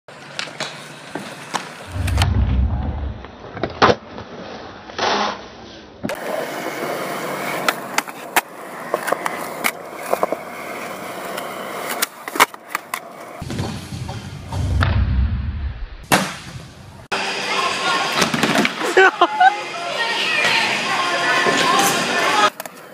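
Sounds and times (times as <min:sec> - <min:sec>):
skateboard wheels rolling on concrete: 0:00.1 - 0:04.9, 0:05.7 - 0:14.8, 0:16.2 - 0:22.9.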